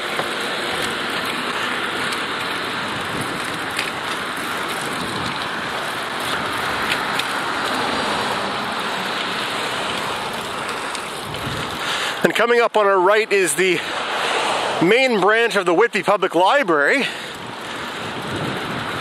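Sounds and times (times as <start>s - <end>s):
passing traffic: 0.0s - 19.0s
tyres on pavement: 0.0s - 19.0s
faint clicks: 9.2s - 11.4s.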